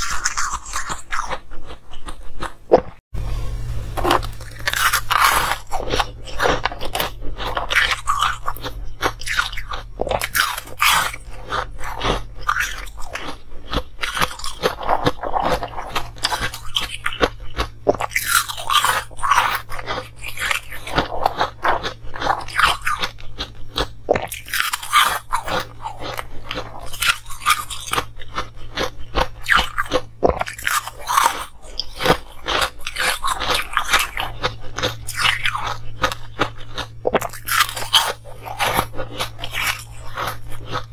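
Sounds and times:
ice cubes crunched by chewing: 0:04.1 - 0:40.9.

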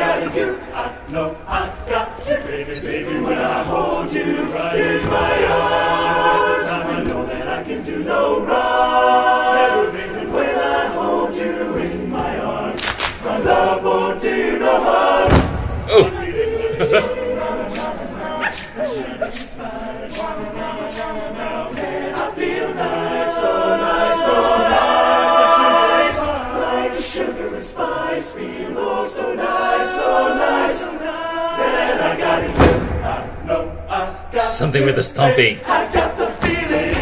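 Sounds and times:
a cappella chorus singing: 0:00.0 - 0:37.0.

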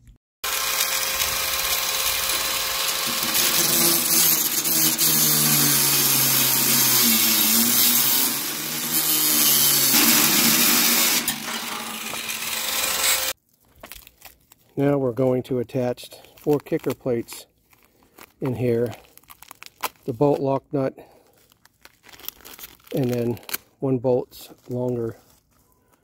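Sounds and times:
angle grinder cutting metal: 0:00.4 - 0:13.4.

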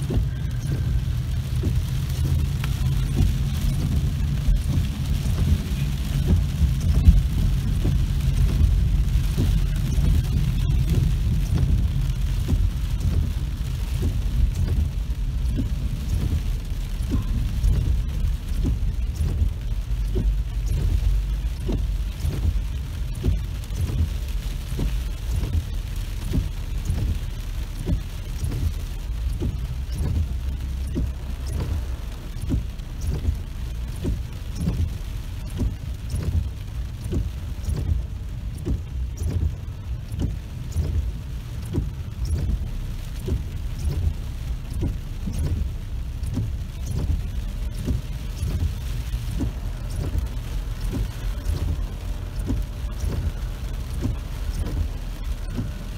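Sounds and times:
heavy rain on a car roof: 0:00.0 - 0:55.9.

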